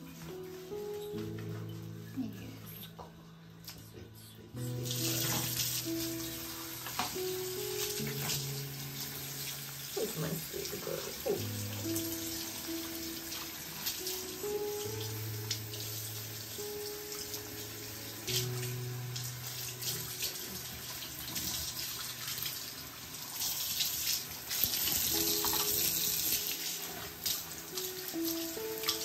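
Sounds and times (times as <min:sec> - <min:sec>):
soft background music: 0:00.0 - 0:29.0
tap water splashing: 0:04.9 - 0:06.2, 0:06.8 - 0:10.7, 0:23.4 - 0:29.0.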